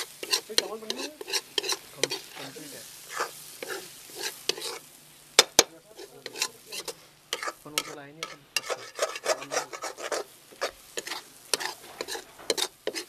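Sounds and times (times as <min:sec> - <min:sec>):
spoon clanking against pan: 0:00.0 - 0:02.3, 0:05.4 - 0:13.0
metal spoon scraping metal pan: 0:00.0 - 0:13.0.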